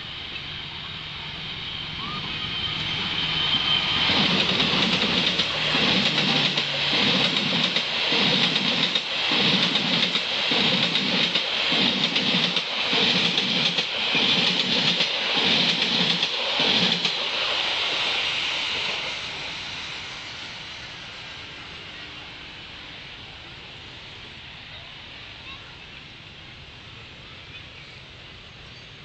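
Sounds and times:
diesel locomotive passing: 0:00.0 - 0:29.0
train wheels clickety-clack: 0:03.5 - 0:20.5.

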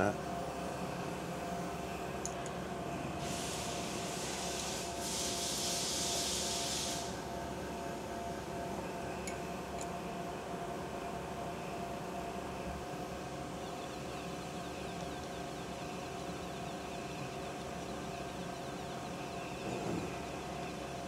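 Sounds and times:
hiss: 0:03.2 - 0:07.2.

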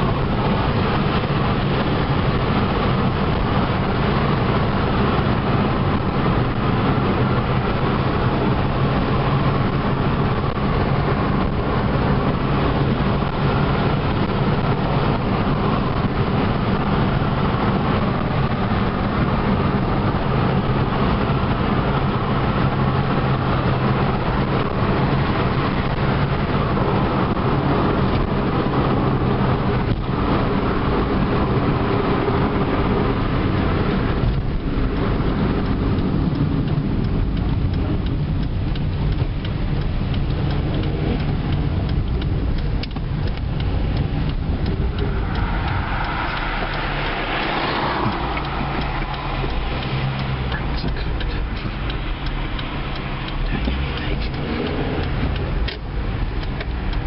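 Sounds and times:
car engine humming: 0:00.0 - 0:57.0
tyre road noise: 0:00.0 - 0:57.0.

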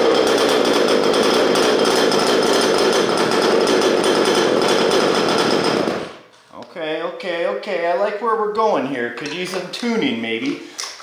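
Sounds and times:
two-stroke engine running: 0:00.0 - 0:06.2.

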